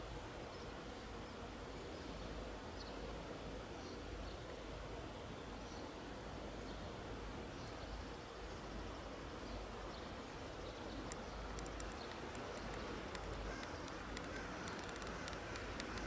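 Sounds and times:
low rumble and hiss: 0.0 - 16.0
high chirps or ticks: 11.0 - 16.0.

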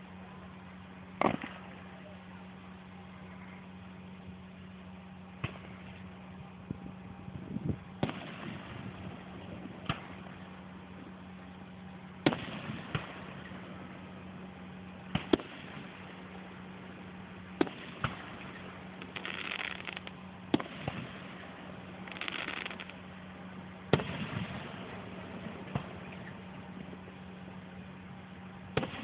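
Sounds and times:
distant firework bangs: 1.2 - 1.8, 8.0 - 10.4, 12.2 - 13.8, 15.1 - 16.1, 17.6 - 21.5, 22.1 - 22.9, 23.9 - 26.4, 28.7 - 29.0
firework crackling: 15.0 - 23.1, 23.9 - 26.7.

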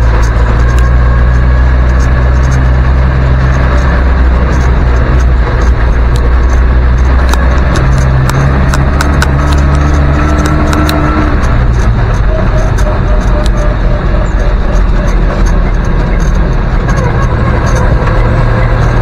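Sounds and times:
small rattles and clicks: 0.0 - 19.0
thin whine: 0.0 - 19.0
vehicle engine drone from inside cab: 0.0 - 19.0.

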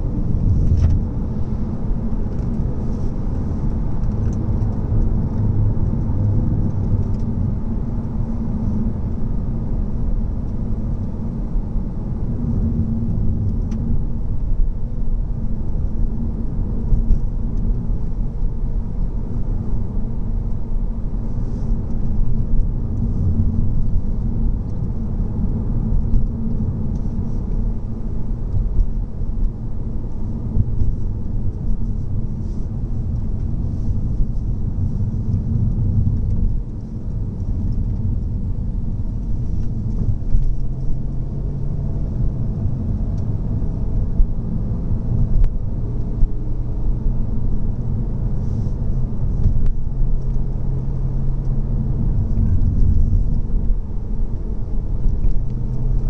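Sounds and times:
tyres and engine rumble: 0.0 - 56.0.

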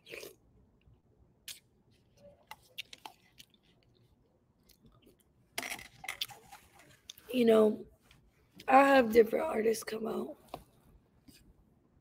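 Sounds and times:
person chewing food: 0.0 - 7.3.

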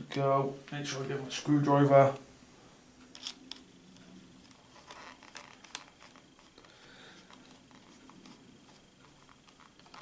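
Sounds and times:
screwdriver clicking and scraping: 3.1 - 3.6, 4.4 - 6.5.

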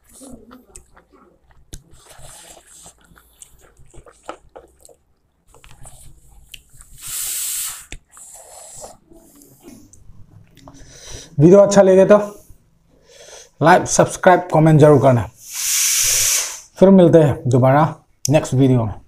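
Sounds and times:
man chewing food: 0.0 - 11.4
breath drawn in through mouth: 6.8 - 9.9, 15.4 - 16.8.

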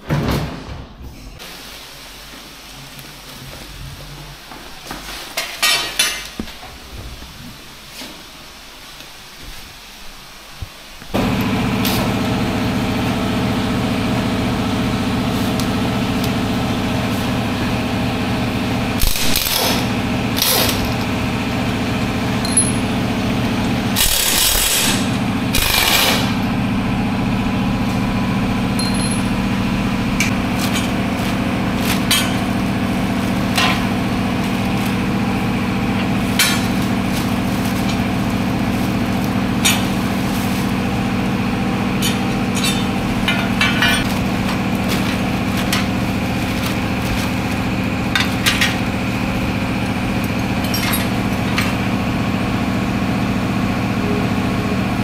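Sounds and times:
steady machine hum: 11.1 - 55.0
pneumatic air tool hissing: 19.0 - 20.8, 24.0 - 26.4
metal tool clinks: 22.4 - 22.8.

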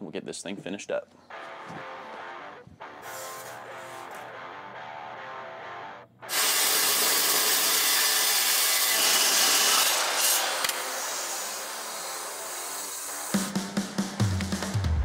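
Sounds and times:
chop saw cutting steel tubing: 3.0 - 4.3, 6.3 - 13.5.

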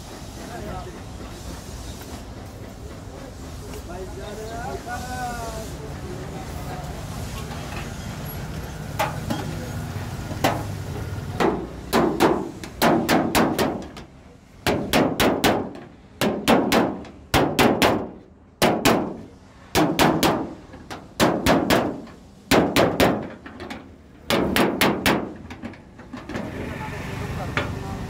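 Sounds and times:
hammer clanging on sheet metal: 11.4 - 25.8.

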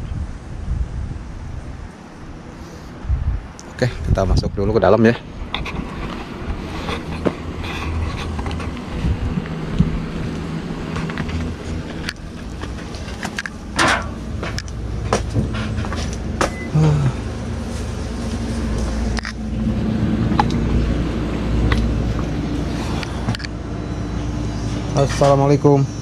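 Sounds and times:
steady low rumble: 0.0 - 26.0
footsteps: 5.6 - 16.7.

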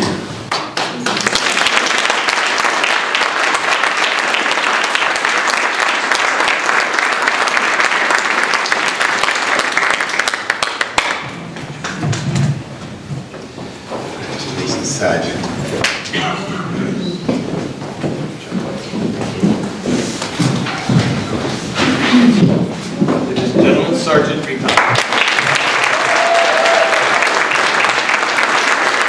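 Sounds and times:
audience applauding: 0.4 - 12.2, 24.6 - 29.0.

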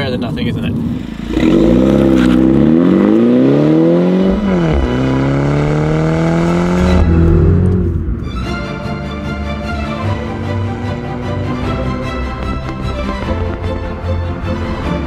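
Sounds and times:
car engine accelerating hard: 0.1 - 15.0
music: 6.6 - 15.0.

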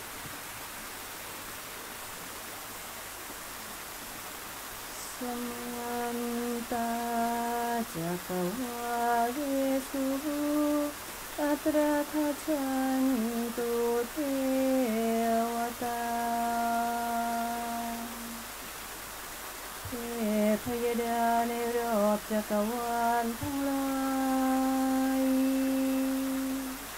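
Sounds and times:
woman singing long held notes: 4.9 - 18.6, 19.9 - 26.9.

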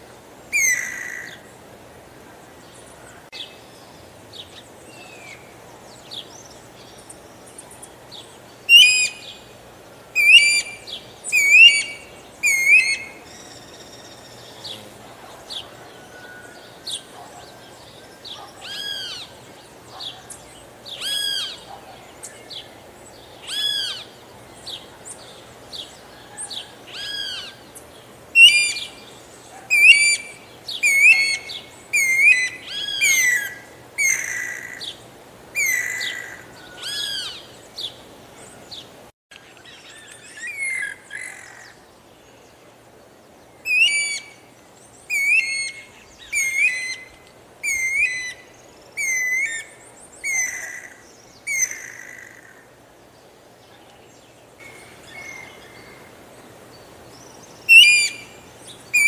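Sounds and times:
cuckoo whistled calls: 0.5 - 1.5, 8.7 - 9.4, 10.2 - 14.7, 28.4 - 29.0, 29.7 - 34.8, 43.6 - 44.4, 45.1 - 52.3, 57.7 - 59.0.

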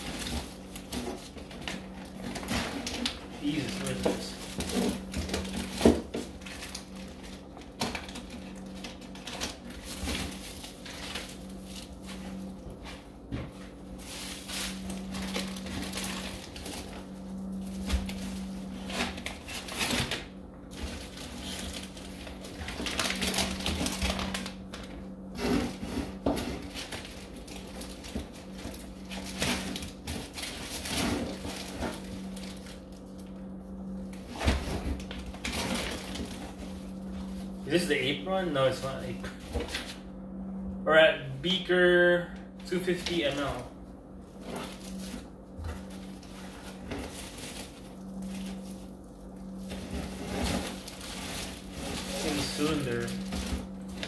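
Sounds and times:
plastic bags rustling: 0.0 - 40.0, 42.6 - 54.0
steady low hum: 0.0 - 54.0.

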